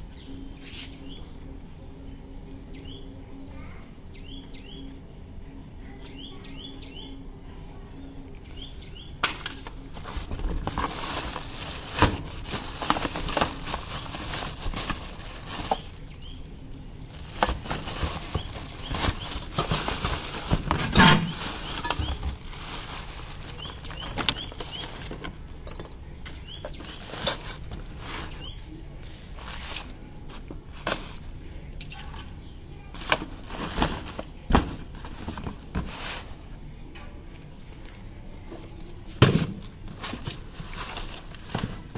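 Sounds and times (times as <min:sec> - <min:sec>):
small birds chirping: 0:00.0 - 0:34.4
plastic bags and cardboard rustling: 0:09.2 - 0:36.7, 0:37.7 - 0:41.9.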